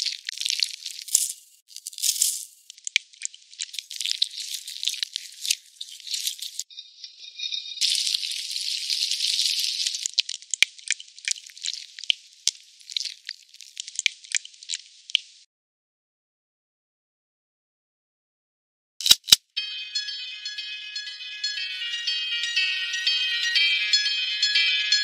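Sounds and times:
frying hiss from pan: 0:00.0 - 0:06.6, 0:07.8 - 0:15.4.

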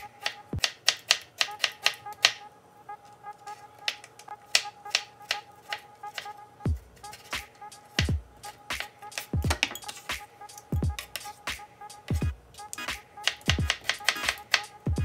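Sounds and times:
faint background music: 0:00.0 - 0:15.0
knife chopping on wooden board: 0:00.2 - 0:02.4, 0:13.2 - 0:14.6.

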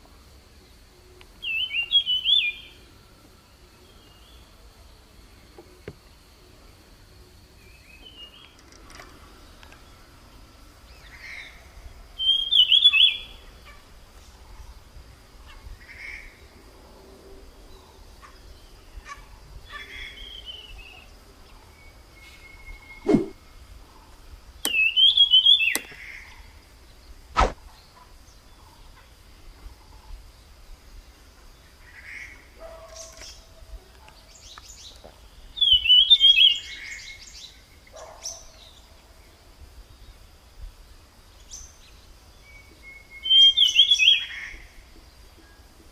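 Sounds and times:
songbird singing: 0:00.0 - 0:45.9
sharp clicks: 0:25.7 - 0:26.0.

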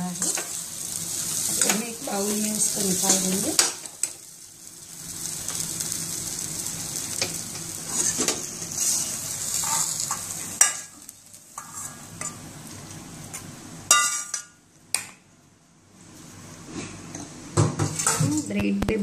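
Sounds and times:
spatula scraping sizzling pan: 0:00.0 - 0:14.6
food sizzling in a pan: 0:00.0 - 0:14.8.

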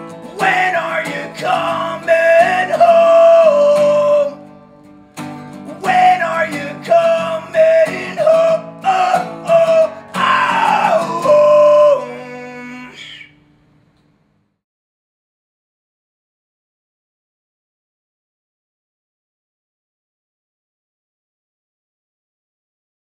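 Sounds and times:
strummed acoustic guitar: 0:00.0 - 0:13.7
man singing loudly: 0:00.2 - 0:04.4, 0:05.7 - 0:13.3.

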